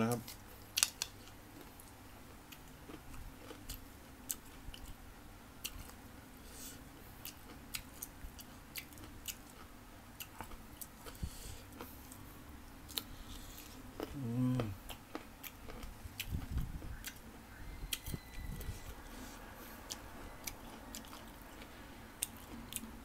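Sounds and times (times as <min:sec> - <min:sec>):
person chewing crisp fruit: 0:00.1 - 0:05.0, 0:05.6 - 0:23.0.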